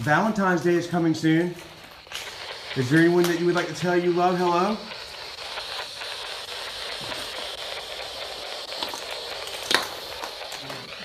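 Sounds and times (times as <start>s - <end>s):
electronic static hiss: 0.0s - 11.0s.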